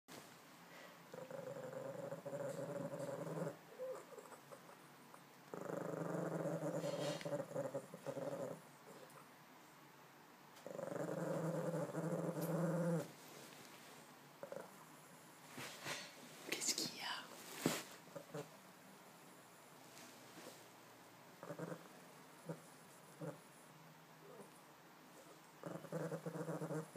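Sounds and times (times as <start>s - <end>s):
dog growling: 1.1s - 9.2s, 10.6s - 13.2s, 14.4s - 15.2s, 18.1s - 18.6s, 21.4s - 23.6s, 24.2s - 24.6s, 25.2s - 26.9s.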